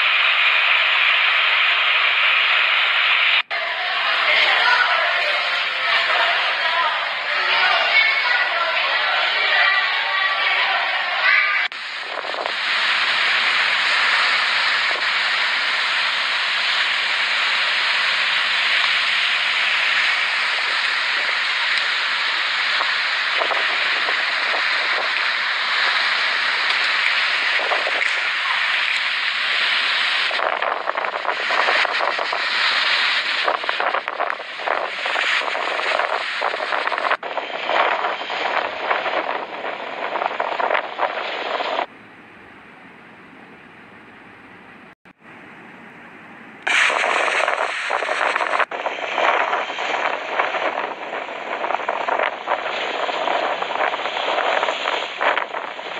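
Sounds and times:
surf breaking on seawall: 0.0 - 41.9, 46.6 - 55.9
strong wind: 0.0 - 55.9.

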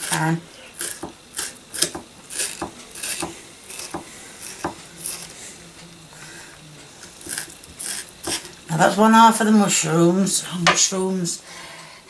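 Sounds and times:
knife chopping onion on wooden board: 0.8 - 1.2, 1.8 - 4.8.

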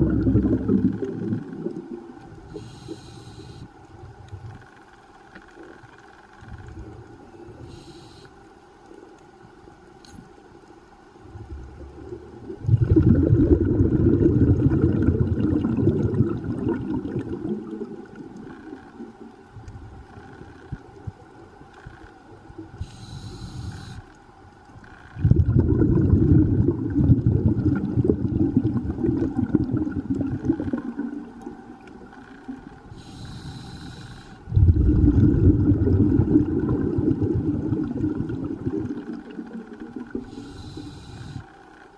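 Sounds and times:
bubbling exhalation underwater: 0.0 - 2.1, 11.9 - 18.8, 25.2 - 31.9, 34.5 - 40.4
hissing regulator inhalation: 2.5 - 3.7, 22.8 - 24.1, 32.9 - 35.1, 40.1 - 41.5.

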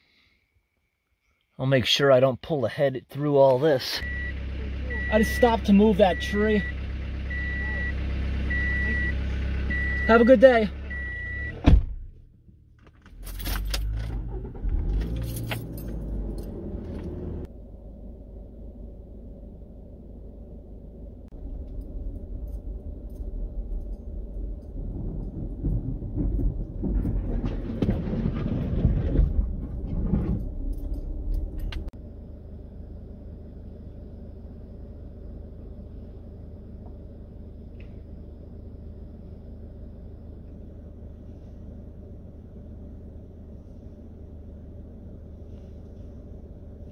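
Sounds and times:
thump: 11.6 - 12.2
vehicle driving on gravel: 21.3 - 32.7
clicking and rattling: 21.7 - 31.9.

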